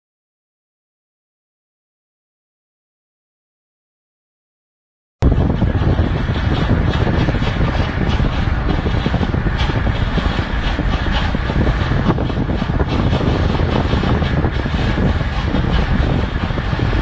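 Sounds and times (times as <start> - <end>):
road and wind rumble inside car: 5.2 - 17.0.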